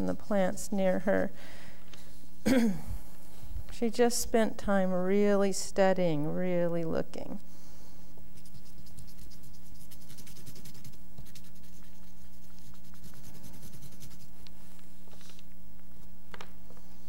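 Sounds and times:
steady low hum: 0.0 - 17.0
pastel scratching on paper: 8.3 - 14.4.

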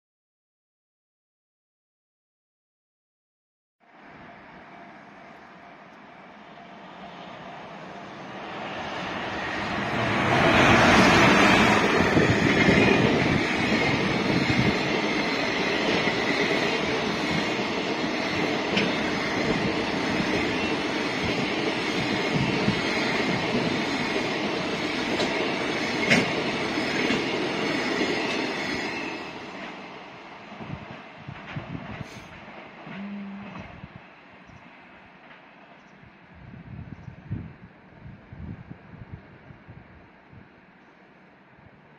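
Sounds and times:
freight train passing: 3.8 - 41.9.

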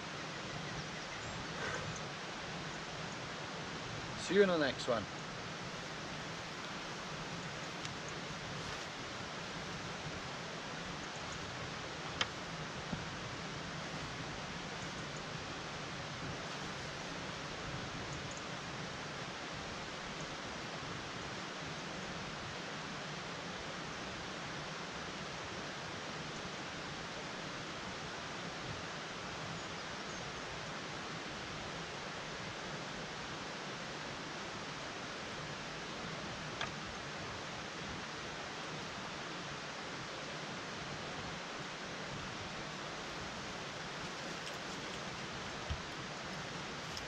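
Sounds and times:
river rushing: 0.0 - 47.0
faint click: 12.2 - 12.4.

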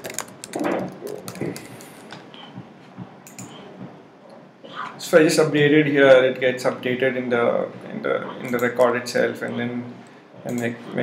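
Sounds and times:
keyboard keystrokes: 3.2 - 3.6.

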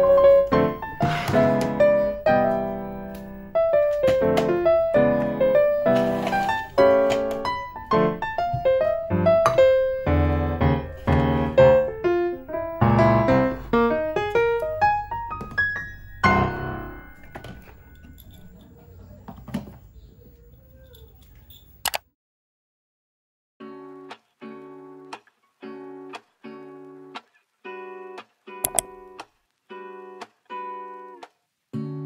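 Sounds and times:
gentle piano music: 0.0 - 18.6.

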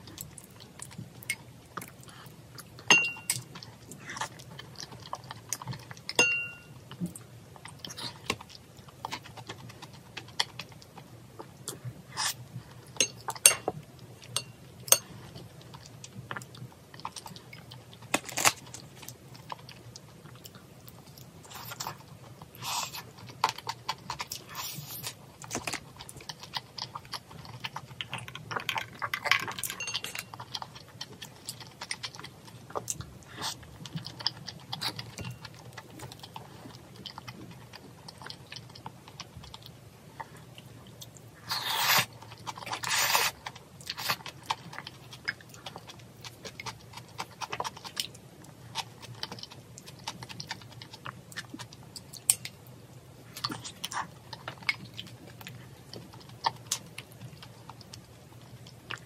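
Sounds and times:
soft chewing: 0.0 - 59.0
utensils clinking on bowl: 2.9 - 3.4, 6.1 - 6.7, 29.6 - 30.4.

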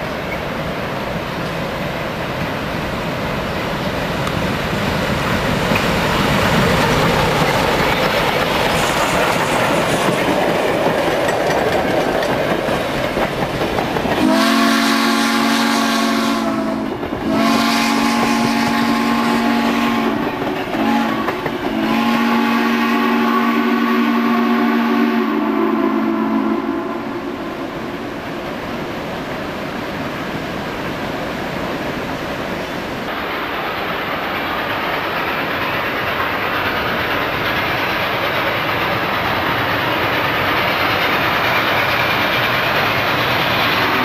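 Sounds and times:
steam locomotive rumbling past: 0.0 - 44.0
steam whistle blasts: 14.2 - 20.2, 20.8 - 27.4, 43.8 - 44.0.

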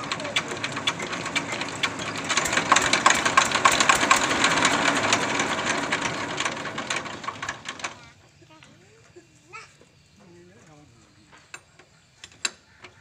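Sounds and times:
diesel engine knocking: 0.0 - 8.1.

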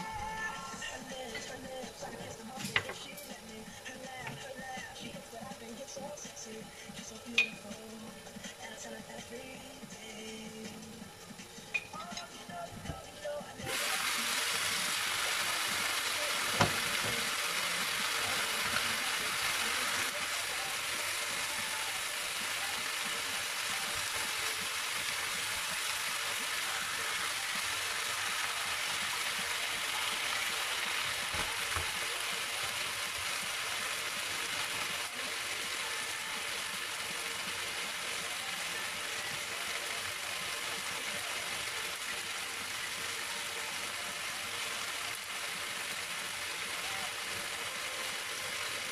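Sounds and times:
chicken sizzling in a pan: 13.6 - 48.9.

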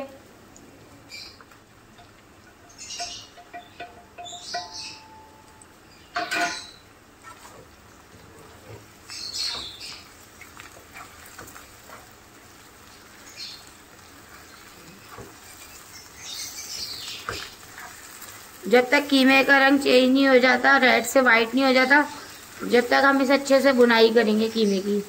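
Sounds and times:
spatula scraping a frying pan: 6.2 - 13.0, 14.2 - 18.6.

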